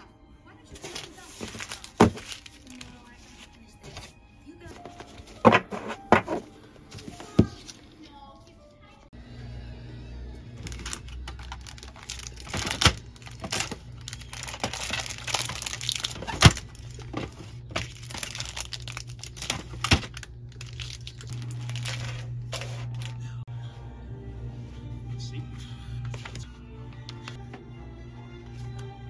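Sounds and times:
plastic bags crinkling: 0:00.8 - 0:03.6, 0:10.6 - 0:23.3.

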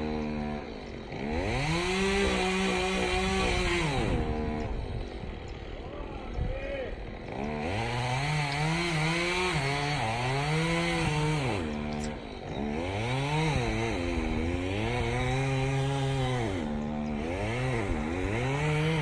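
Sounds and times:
chainsaw cutting wood: 0:00.0 - 0:19.0.

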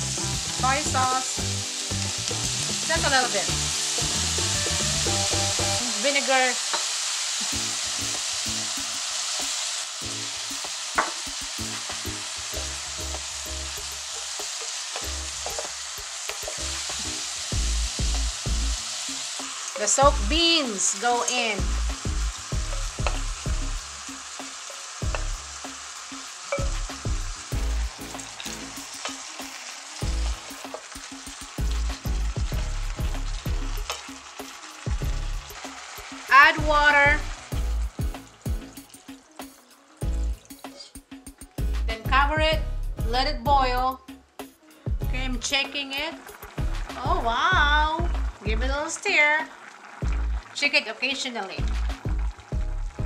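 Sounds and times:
pork sizzling in oil: 0:00.0 - 0:42.0, 0:44.5 - 0:53.0
spatula stirring and scraping: 0:14.1 - 0:17.0.

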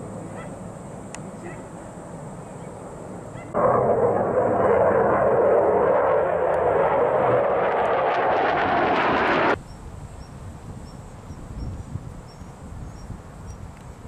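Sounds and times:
jet aircraft roar: 0:02.2 - 0:09.6
faint insect chirps: 0:09.6 - 0:14.0.

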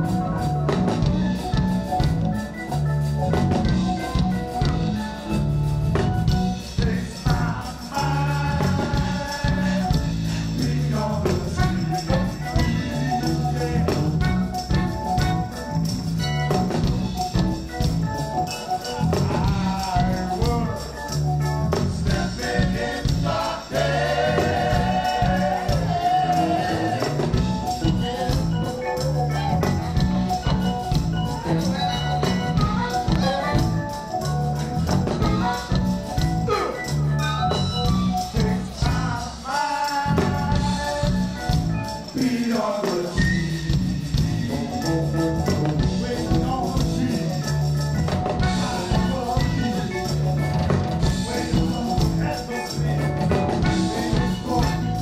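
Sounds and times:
bass line: 0:00.0 - 0:39.3, 0:40.0 - 0:42.3, 0:43.2 - 0:55.0
drums and percussion: 0:00.0 - 0:55.0
electric guitar: 0:00.0 - 0:55.0
harmonica: 0:00.0 - 0:55.0
saxophone: 0:00.0 - 0:55.0
person singing: 0:06.6 - 0:15.0, 0:18.6 - 0:21.1, 0:22.0 - 0:29.6, 0:38.3 - 0:41.3, 0:42.0 - 0:47.8, 0:48.4 - 0:50.4, 0:51.0 - 0:55.0.

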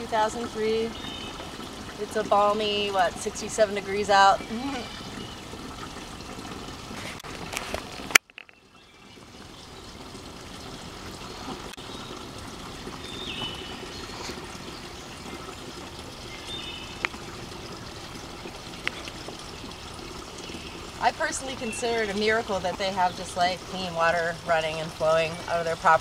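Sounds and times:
water trickling into a jug: 0:00.0 - 0:26.0.

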